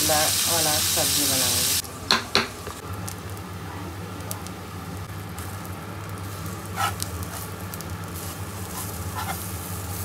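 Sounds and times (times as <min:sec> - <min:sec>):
batter sizzling in a frying pan: 0:00.0 - 0:01.8, 0:02.6 - 0:10.0
metal spatula scraping pan: 0:08.7 - 0:09.4.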